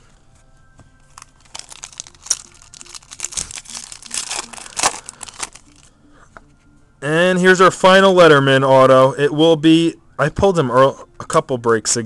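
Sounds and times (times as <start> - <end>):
foil wrapper tearing and crinkling: 1.1 - 5.9.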